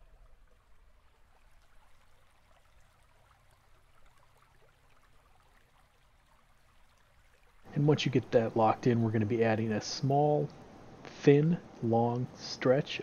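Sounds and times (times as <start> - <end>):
low steady hum: 0.0 - 13.0
faint hiss: 7.7 - 13.0.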